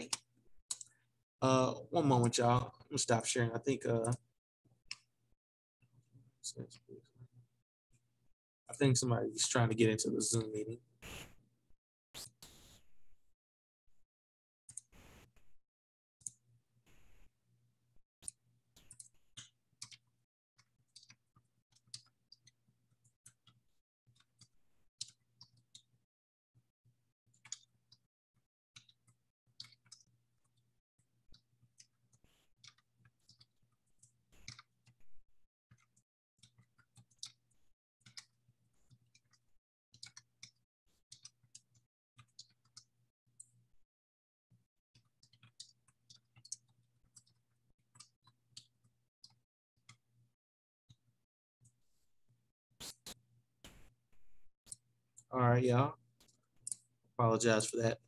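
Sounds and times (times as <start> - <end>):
mouse and keyboard clicks: 32.6 - 35.0.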